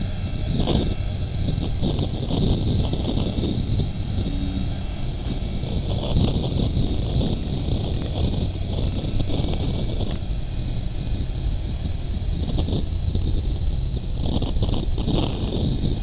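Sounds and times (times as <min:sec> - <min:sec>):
distant jet engines rumbling: 0:00.0 - 0:16.0.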